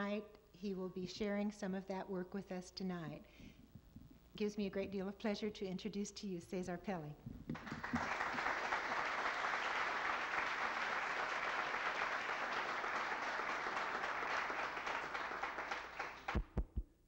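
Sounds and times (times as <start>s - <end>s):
audience applauding: 7.6s - 16.5s.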